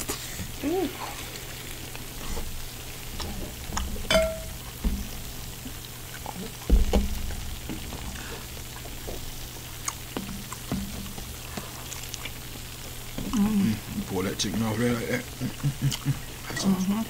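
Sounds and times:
crackly crunching: 0.0 - 14.1
wet chewing clicks: 0.9 - 4.0, 5.4 - 14.0, 15.3 - 16.6
dull low thumps: 2.4 - 11.7.

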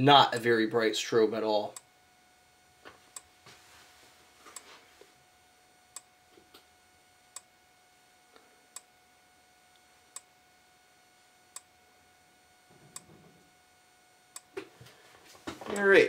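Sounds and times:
strobe clicks: 5.9 - 6.7, 7.3 - 7.5, 9.7 - 10.3, 11.5 - 11.8, 14.3 - 14.6.

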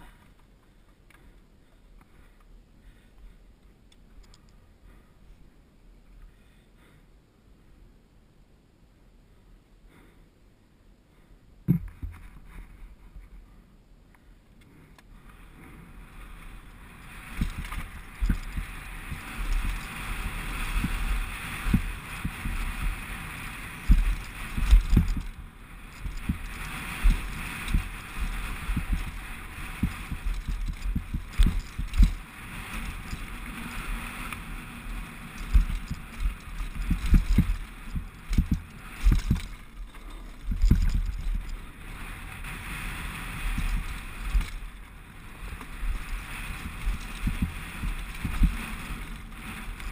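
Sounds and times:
bike wheels thumping on rocks: 11.7 - 12.3, 17.1 - 41.6, 45.4 - 49.9
bike tyres hissing on gravel: 15.2 - 49.9.

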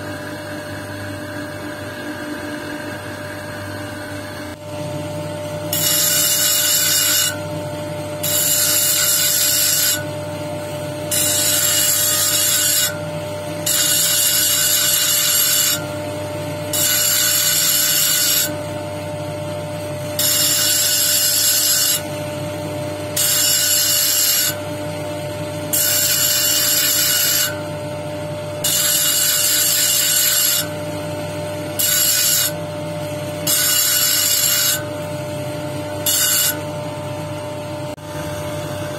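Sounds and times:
stone grinding on wheel: 5.7 - 7.5, 8.2 - 10.1, 11.1 - 13.0, 31.7 - 32.6, 33.4 - 35.0, 35.9 - 36.7.

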